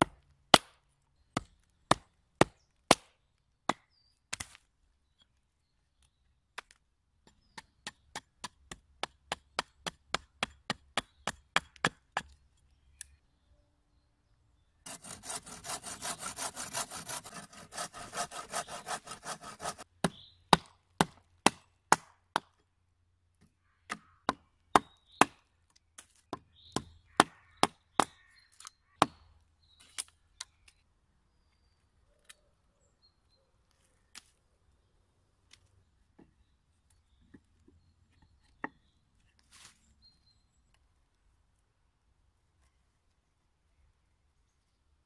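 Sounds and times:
saw cutting through log: 14.9s - 19.9s.

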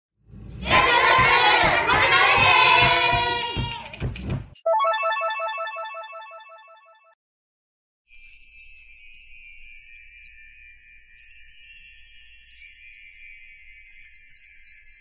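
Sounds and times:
shimmering jingle bells and chimes: 4.7s - 6.8s, 8.1s - 15.0s.

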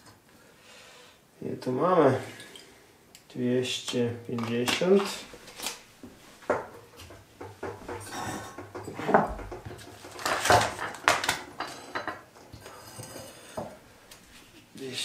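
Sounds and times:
items knocking on wooden worktop: 6.4s - 12.3s.

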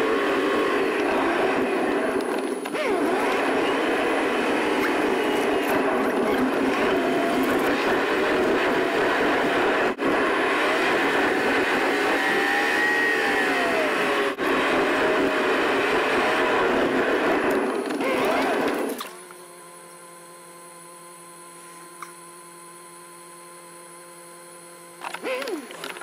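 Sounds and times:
car engine and tyre noise: 0.0s - 19.3s.

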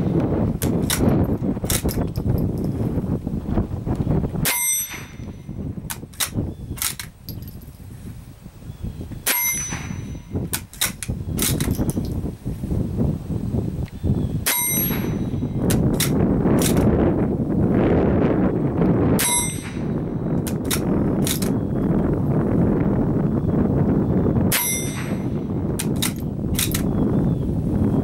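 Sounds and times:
rifle bolt metallic clicks: 0.6s - 2.7s, 5.9s - 7.6s, 9.2s - 12.2s, 13.8s - 16.9s, 20.4s - 21.6s, 25.8s - 26.9s.

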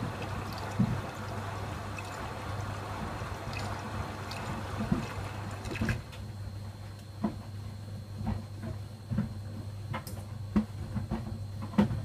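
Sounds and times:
water pouring into washing machine: 0.0s - 6.2s
low machine hum: 0.0s - 12.0s.

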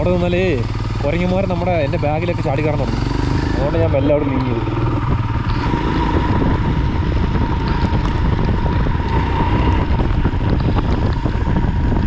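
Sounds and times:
motorcycle engine running: 0.0s - 12.0s
wind buffeting microphone: 0.0s - 12.0s.

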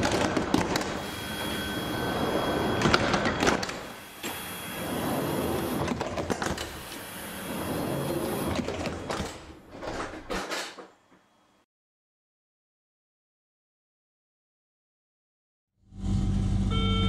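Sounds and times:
sliding doors clunking: 0.0s - 11.0s.

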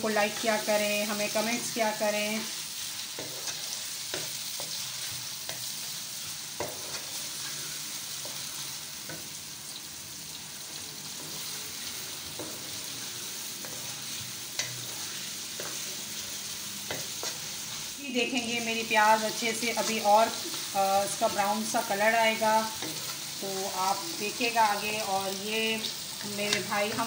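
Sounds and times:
onions sizzling in oil: 0.0s - 27.0s
wooden spoon scraping pan: 12.4s - 16.0s.

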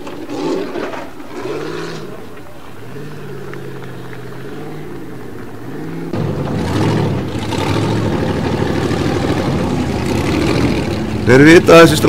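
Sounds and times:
buggy engine revving: 2.8s - 12.0s.

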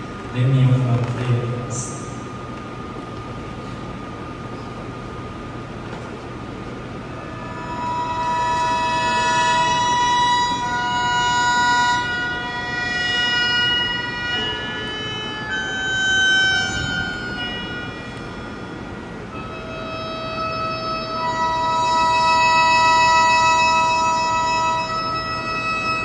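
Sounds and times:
wind instrument long notes: 6.9s - 26.0s.

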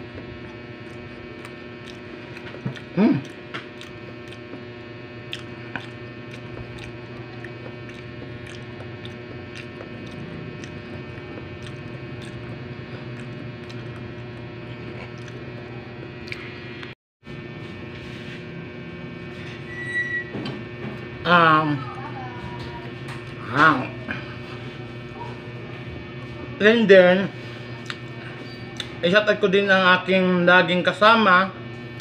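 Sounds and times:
person chewing pizza: 0.0s - 16.9s, 27.4s - 29.0s
steady electrical hum: 0.0s - 32.0s.

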